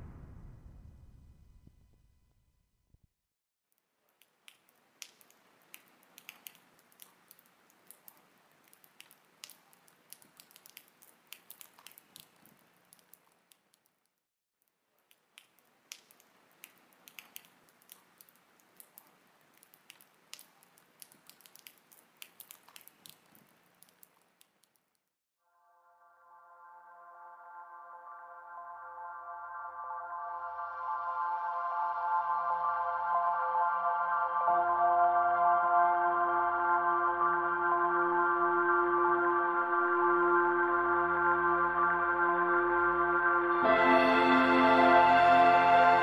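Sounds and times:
faint rain: 3.9 - 25.1, 43.6 - 46.0.

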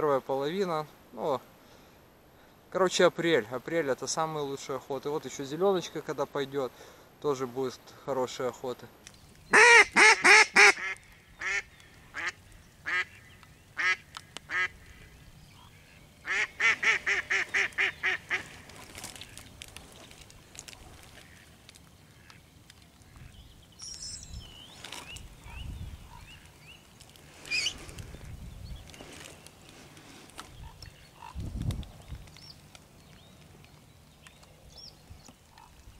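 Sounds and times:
hen duck quacking: 9.5 - 13.2, 16.3 - 18.5.

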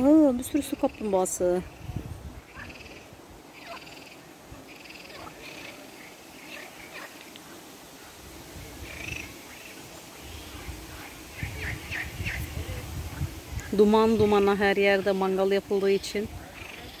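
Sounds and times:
frogs croaking: 0.5 - 8.2, 16.4 - 17.0.

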